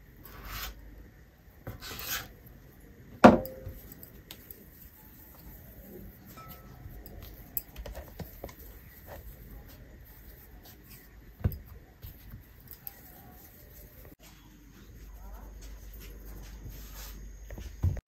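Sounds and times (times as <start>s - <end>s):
loud knock on counter: 3.2s - 3.6s.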